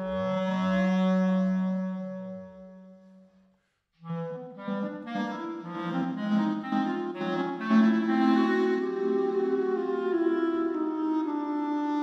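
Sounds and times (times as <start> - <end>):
clarinet with electronics: 0.0 - 3.4, 4.0 - 12.0.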